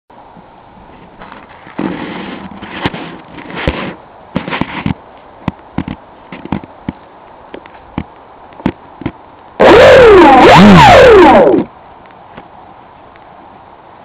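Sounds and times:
faint steady whine: 0.1 - 14.0.

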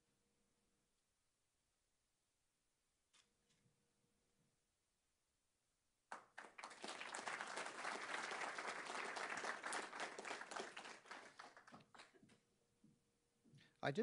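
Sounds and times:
audience applauding: 6.1 - 12.2.

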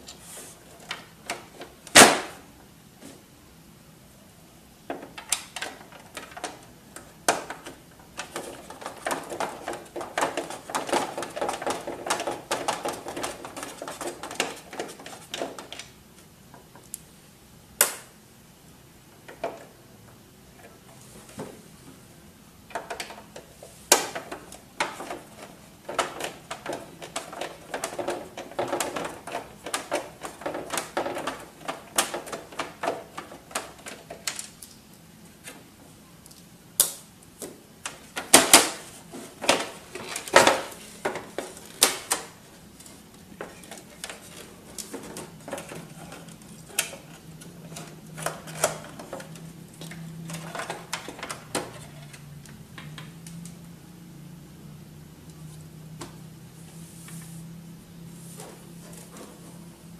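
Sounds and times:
plastic parts clicking and clattering: 4.9 - 16.0, 22.7 - 34.8, 37.8 - 53.3.

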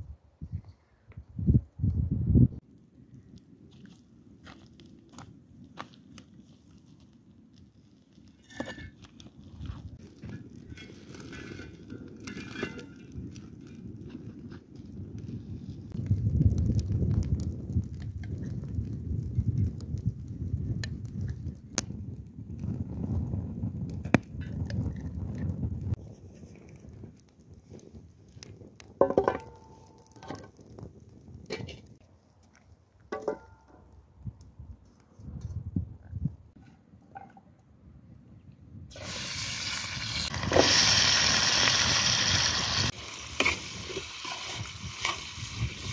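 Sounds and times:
wood fire crackling: 2.5 - 35.4, 38.9 - 45.9
griddle clicks and scrapes: 8.2 - 13.8, 27.7 - 32.0, 42.8 - 45.9.

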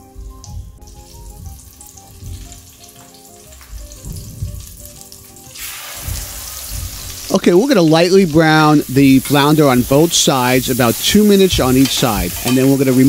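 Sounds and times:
quiet melody: 0.0 - 10.1
fish frying in sizzling oil: 0.3 - 13.0.

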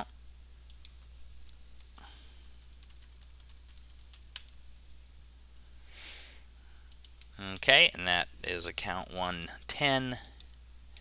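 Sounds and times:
low steady hum: 0.0 - 11.0
computer keyboard typing: 1.7 - 4.6, 6.9 - 7.3.

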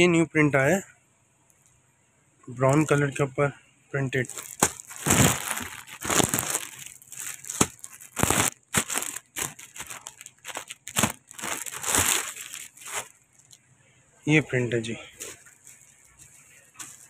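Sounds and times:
plastic packaging crinkling: 4.2 - 13.6, 15.2 - 17.0.

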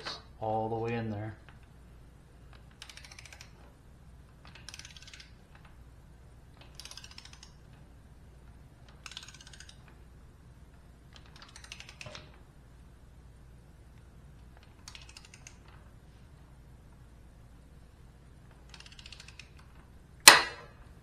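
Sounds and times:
ratchet wrench clicking: 2.5 - 3.6.

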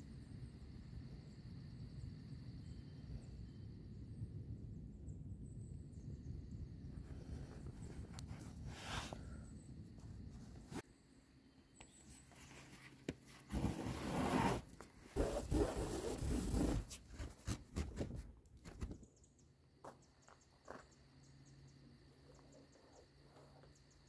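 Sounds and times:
plastic tarp rustling and scraping: 12.4 - 18.2.

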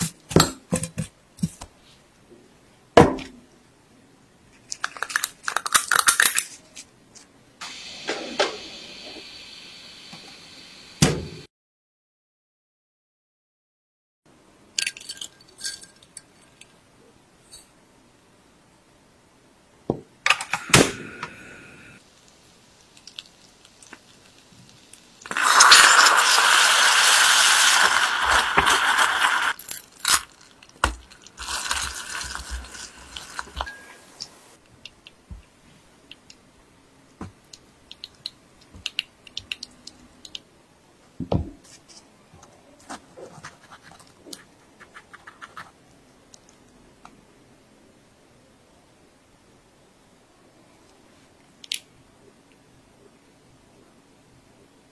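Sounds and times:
loud steady hiss: 7.6 - 11.5, 20.4 - 34.6.

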